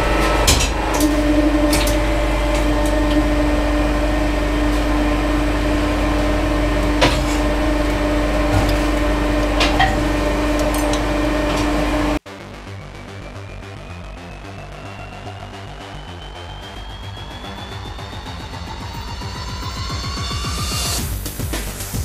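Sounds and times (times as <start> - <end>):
pump motor humming: 0.0 - 12.2.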